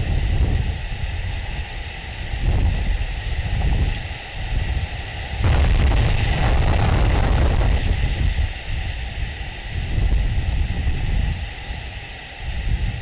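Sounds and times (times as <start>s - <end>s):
wind noise: 0.0s - 13.0s
loud thunder crash: 5.4s - 8.4s
thunder rumbling: 5.4s - 8.6s.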